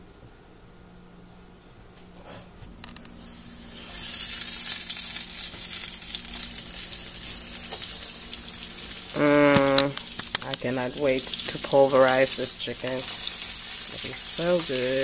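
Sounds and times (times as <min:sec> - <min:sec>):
chicken sizzling in hot oil: 0:03.4 - 0:15.0.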